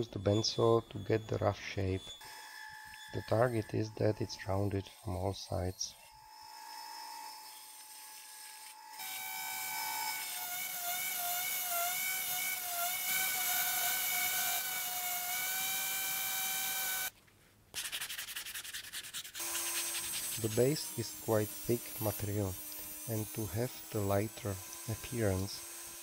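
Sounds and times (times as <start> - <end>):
angle grinder whining: 0.0 - 17.1, 19.4 - 26.0
sanding block rasping on wood: 17.8 - 25.6.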